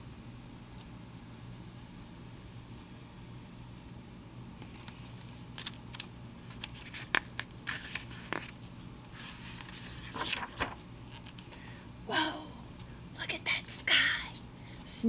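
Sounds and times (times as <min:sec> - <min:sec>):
faint low hum: 0:00.0 - 0:15.0
paper rustling: 0:04.6 - 0:11.6.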